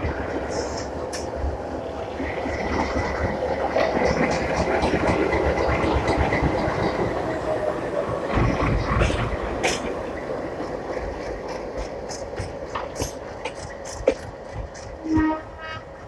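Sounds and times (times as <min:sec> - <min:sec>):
diesel locomotive engine whine: 0:00.0 - 0:16.0
wheels clicking over rail joints: 0:02.5 - 0:07.4, 0:08.2 - 0:16.0.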